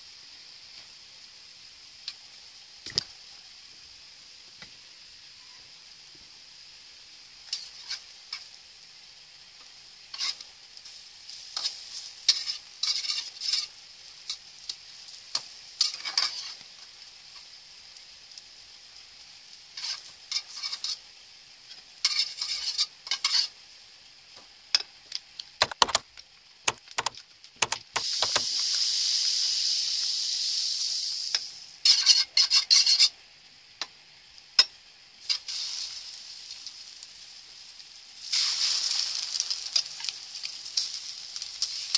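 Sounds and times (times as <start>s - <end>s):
bread sizzling in a wok: 0.0s - 41.9s
metal spatula scraping wok: 10.1s - 10.4s, 11.6s - 13.7s, 15.8s - 16.6s, 19.8s - 21.0s, 22.0s - 23.5s, 31.8s - 33.1s.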